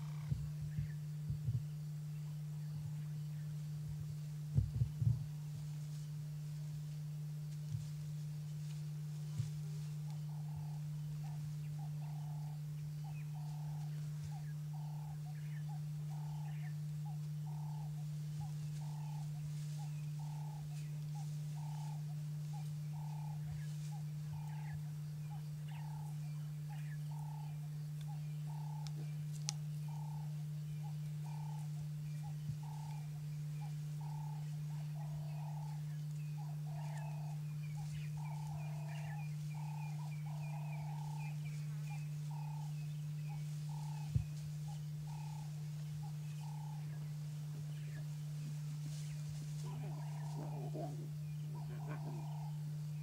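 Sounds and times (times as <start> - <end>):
frogs croaking: 0.0 - 3.4, 9.7 - 53.0
steady low hum: 0.0 - 53.0
rhythmic animal call: 10.1 - 47.1, 49.4 - 53.0.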